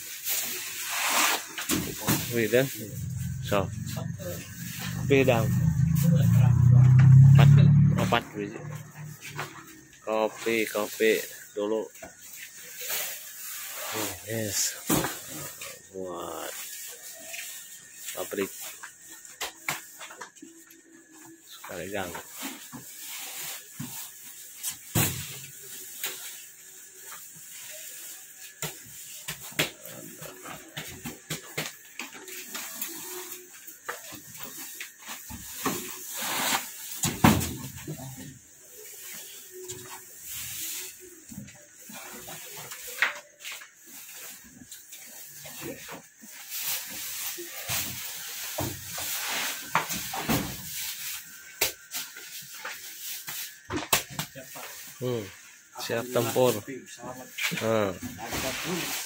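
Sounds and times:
plastic sacks rustling: 0.0s - 5.9s, 10.4s - 20.6s, 57.8s - 59.0s
plastic sacks rustling and scraping: 0.0s - 7.8s, 8.4s - 53.7s, 54.3s - 59.0s.

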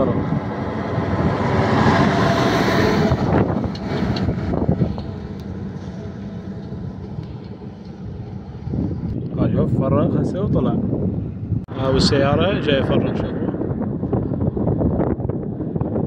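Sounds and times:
heavy truck driving past: 0.0s - 9.1s.

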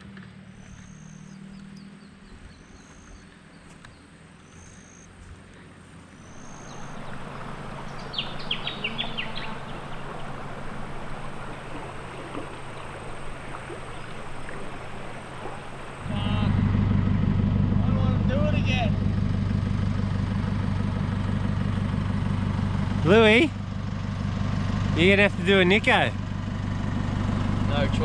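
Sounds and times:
birds twittering: 0.6s - 5.1s, 6.2s - 16.7s
flowing water rushing: 6.3s - 16.6s
faint low hum: 6.3s - 16.7s.

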